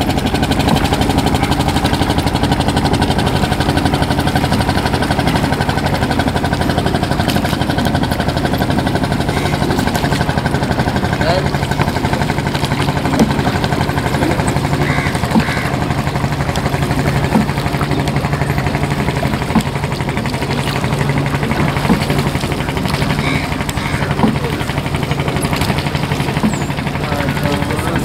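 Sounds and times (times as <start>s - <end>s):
boat engine chugging: 0.0s - 28.0s
engine knock: 0.0s - 28.0s.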